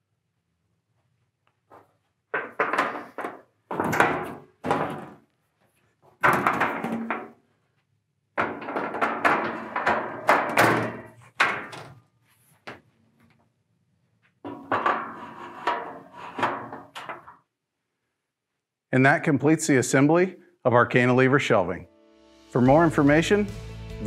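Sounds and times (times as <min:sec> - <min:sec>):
metal shelves clanking: 0:02.5 - 0:05.2, 0:08.4 - 0:12.0, 0:14.5 - 0:17.4.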